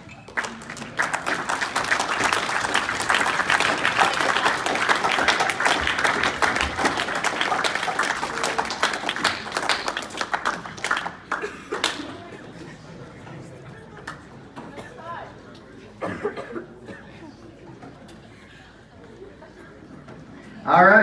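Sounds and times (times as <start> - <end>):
audience clapping: 0.0 - 12.3.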